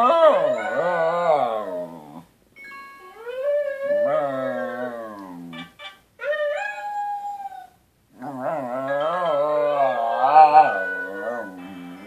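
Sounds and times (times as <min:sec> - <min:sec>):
dogs howling: 0:00.0 - 0:02.2, 0:03.3 - 0:05.5, 0:08.3 - 0:12.0.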